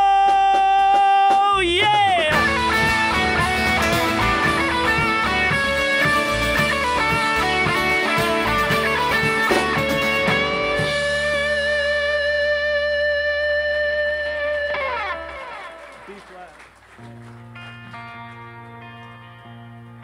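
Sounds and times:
live band playing instrumental: 0:00.0 - 0:20.0
final guitar chord ringing: 0:02.3 - 0:15.7.

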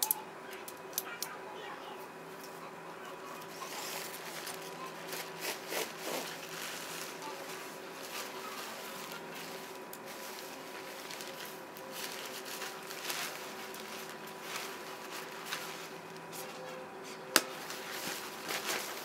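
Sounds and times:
nylon tent fabric rustling: 0:03.6 - 0:16.7, 0:17.5 - 0:19.0.

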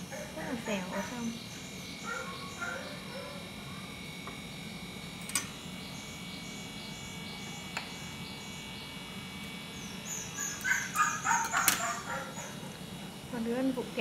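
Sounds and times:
high-pitched animal calls: 0:10.1 - 0:12.6.

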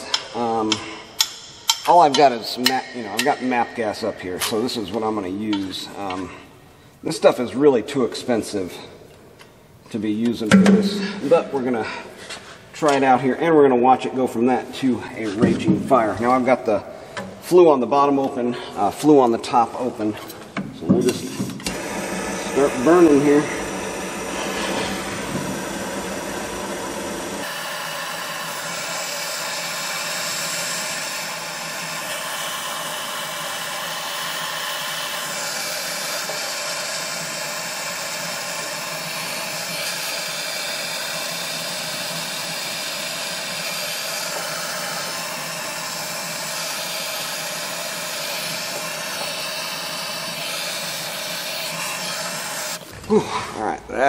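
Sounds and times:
gas torch hissing: 0:20.8 - 0:53.2.

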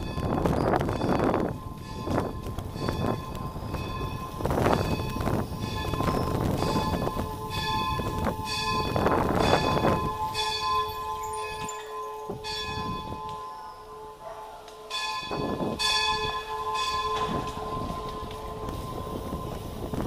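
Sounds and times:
church bells ringing: 0:00.0 - 0:20.0
tyres on stone paving: 0:00.0 - 0:20.0
wind rumble: 0:00.0 - 0:20.0.

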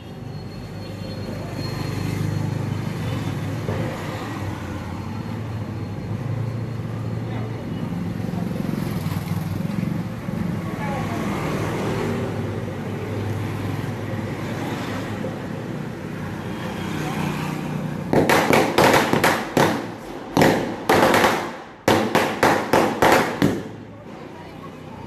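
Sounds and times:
street background noise: 0:00.0 - 0:25.0
firecrackers banging: 0:18.0 - 0:24.4.

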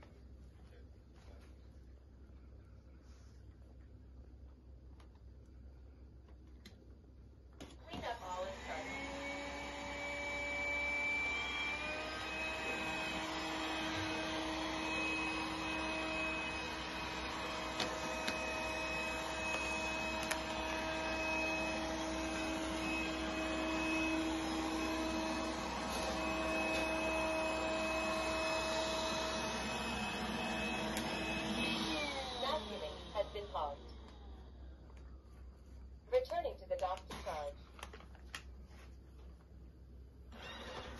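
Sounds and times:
robot vacuum motor whine: 0:08.1 - 0:34.5, 0:40.3 - 0:40.9.

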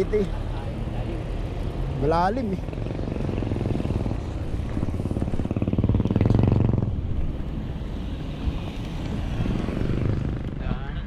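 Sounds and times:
wind and road noise: 0:00.0 - 0:11.0
small motorcycle engine: 0:02.6 - 0:07.0.

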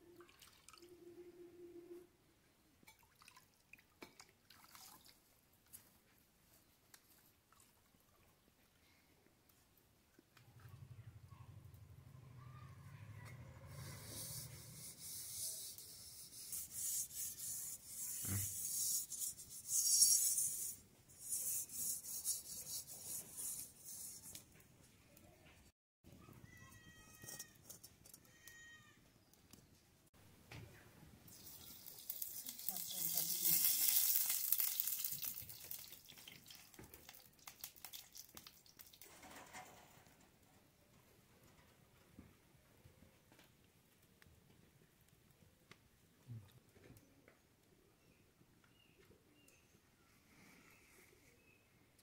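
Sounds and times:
scrubbing metal pot: 0:13.7 - 0:24.4, 0:31.3 - 0:36.6
oil pour hiss: 0:31.3 - 0:39.0
oil crackling and popping: 0:31.3 - 0:39.2.

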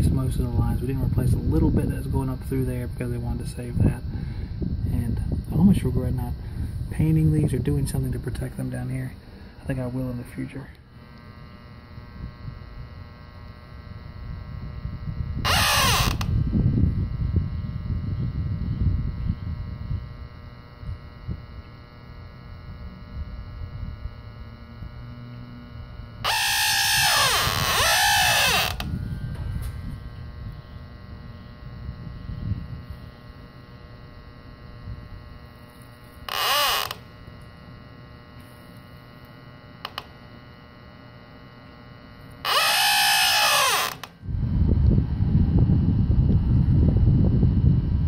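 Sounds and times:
steady hum: 0:00.0 - 0:48.0.

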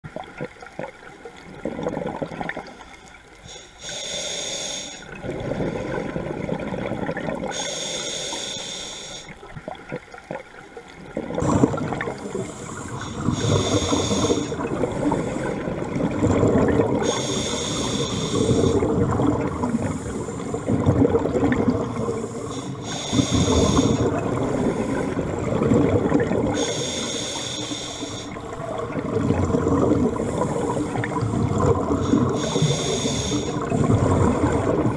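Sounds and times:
exhaled air bubbles: 0:00.0 - 0:34.9
regulator hissing inhale: 0:03.4 - 0:05.1, 0:07.5 - 0:09.4, 0:12.4 - 0:15.6, 0:17.0 - 0:18.8, 0:19.7 - 0:20.7, 0:22.0 - 0:24.1, 0:26.6 - 0:28.4, 0:32.0 - 0:33.6.

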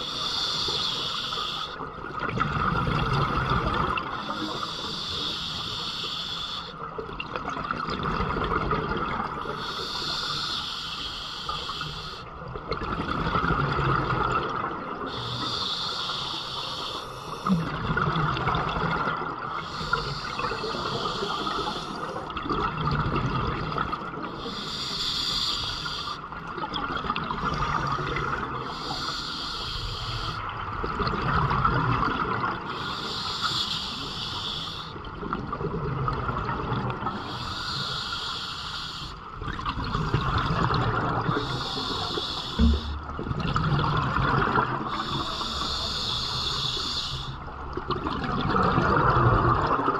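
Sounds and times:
diver inhaling through regulator: 0:00.0 - 0:01.8, 0:04.2 - 0:06.8, 0:09.4 - 0:12.3, 0:15.1 - 0:17.7, 0:19.6 - 0:22.2, 0:24.3 - 0:26.2, 0:27.7 - 0:30.5, 0:32.7 - 0:35.0, 0:37.1 - 0:39.2, 0:41.2 - 0:43.1, 0:44.6 - 0:47.4
exhaled air bubbling: 0:00.0 - 0:49.9.

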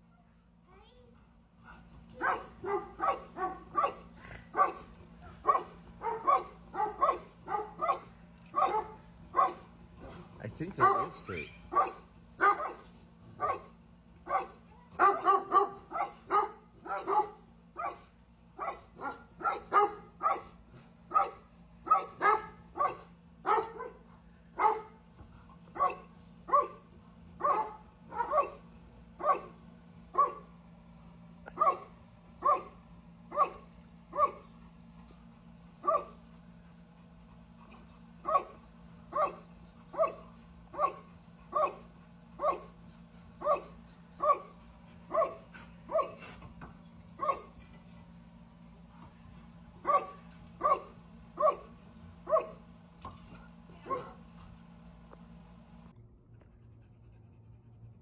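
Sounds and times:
faint steady hum: 0:00.0 - 0:58.0
dog barking: 0:02.2 - 0:09.7, 0:10.8 - 0:24.0, 0:24.6 - 0:24.9, 0:25.8 - 0:26.8, 0:27.4 - 0:28.6, 0:29.2 - 0:29.5, 0:30.2 - 0:30.5, 0:31.5 - 0:34.5, 0:35.8 - 0:36.2, 0:38.2 - 0:42.7, 0:43.4 - 0:44.5, 0:45.1 - 0:46.3, 0:47.2 - 0:47.6, 0:49.8 - 0:51.7, 0:52.3 - 0:52.6, 0:53.8 - 0:54.2.

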